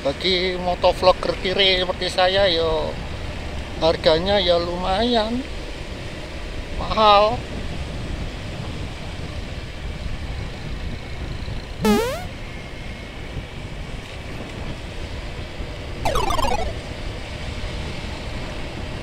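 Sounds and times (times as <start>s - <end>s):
falling pitched sound: 11.9s - 12.3s, 16.1s - 16.9s
rising pitched sound: 11.9s - 12.3s, 16.1s - 16.8s.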